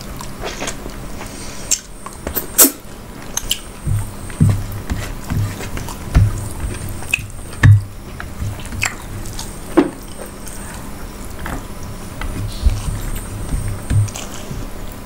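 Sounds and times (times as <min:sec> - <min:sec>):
wet chewing: 0:00.0 - 0:15.0
fingers mixing rice with curry: 0:03.4 - 0:09.6, 0:12.2 - 0:14.7.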